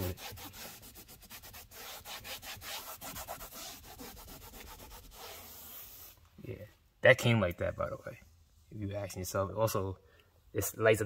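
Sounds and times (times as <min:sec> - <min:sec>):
cloth wiping dashboard: 0:00.0 - 0:06.2.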